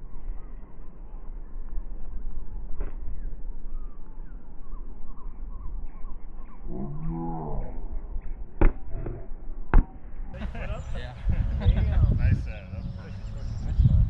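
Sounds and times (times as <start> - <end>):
birds chirping: 9.9 - 14.0
wind rumble on microphone: 10.4 - 14.0.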